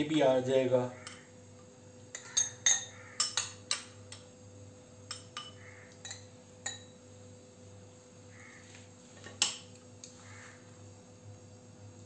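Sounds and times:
spoon clinking against glasses: 2.1 - 3.9, 5.1 - 7.0.

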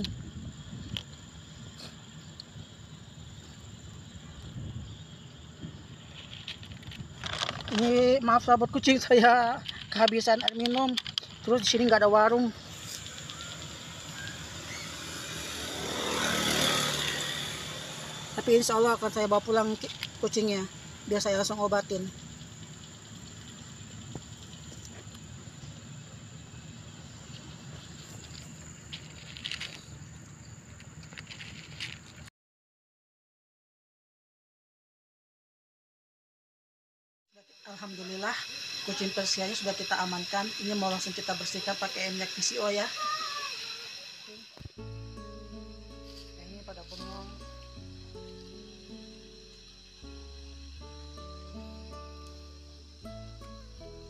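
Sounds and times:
faint high whine: 12.3 - 31.6, 37.4 - 54.0.

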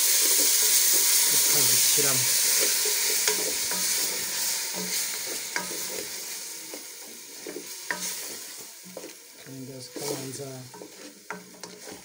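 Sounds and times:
food sizzling in a pot: 0.0 - 12.0
wooden spoon stirring and scraping: 0.0 - 12.0.

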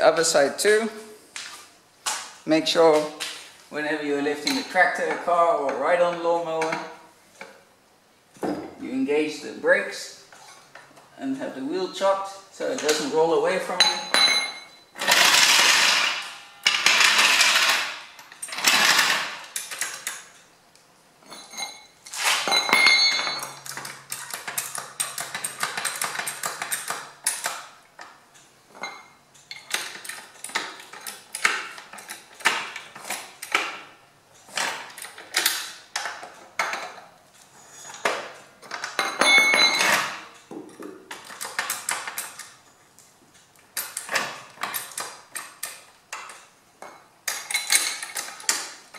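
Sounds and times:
metal clanks and clinks: 13.7 - 20.2, 21.2 - 27.5, 28.7 - 33.6, 34.6 - 42.4, 43.8 - 48.8
jack ratchet clicking: 15.0 - 20.2.

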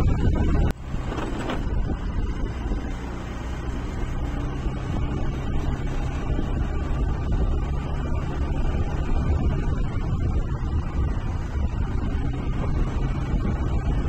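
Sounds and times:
vehicle engine and road rumble: 0.0 - 14.0.

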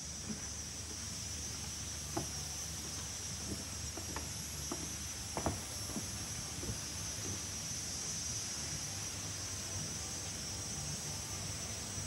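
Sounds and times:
insects chorus: 0.0 - 12.0
soft knocks: 3.5 - 6.8.

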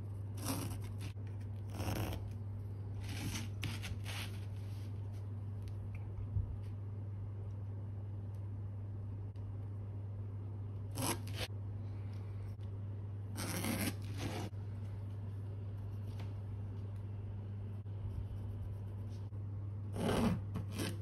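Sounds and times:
low hum: 4.3 - 20.0.

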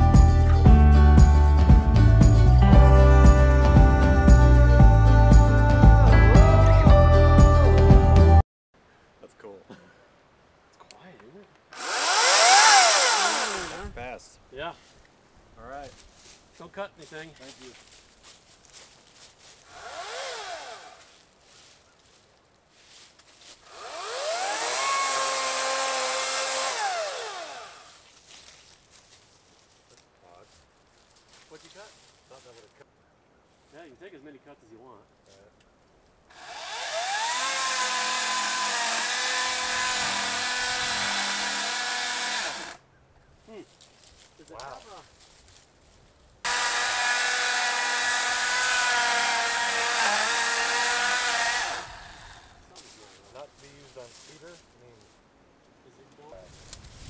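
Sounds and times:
electric chainsaw motor whining: 11.8 - 13.9, 19.7 - 21.0, 23.7 - 28.0, 36.3 - 42.8, 46.5 - 52.7.

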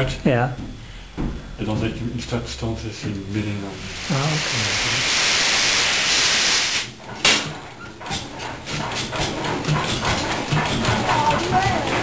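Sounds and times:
starting air hissing: 3.7 - 7.0
diesel engine knocking: 8.8 - 12.0.

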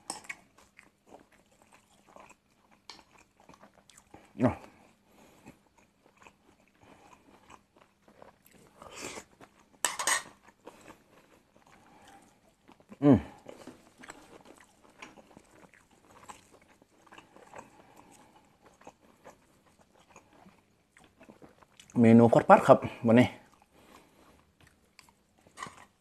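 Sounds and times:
man chewing: 0.0 - 22.0, 23.4 - 26.0
man grunting: 13.0 - 13.4.

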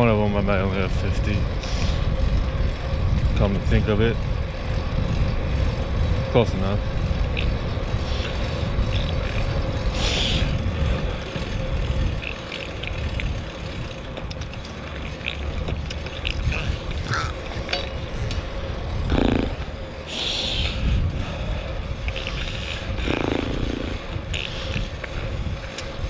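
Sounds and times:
bike road rumble: 0.0 - 26.0
wind buffeting microphone: 0.0 - 26.0.

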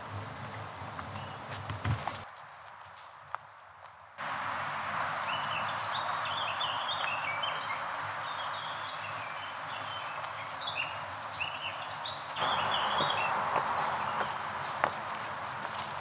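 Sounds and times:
songbirds chirping and warbling: 0.0 - 1.6, 3.4 - 16.0
steady rushing hiss: 4.2 - 16.0.

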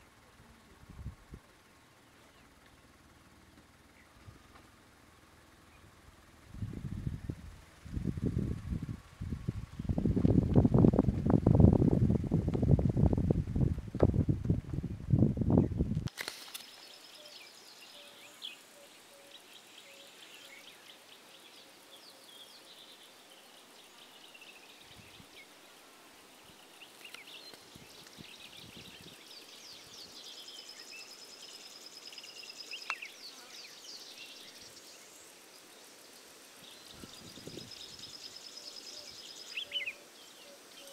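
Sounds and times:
birds chirping and trilling: 16.5 - 25.7, 26.3 - 40.9.

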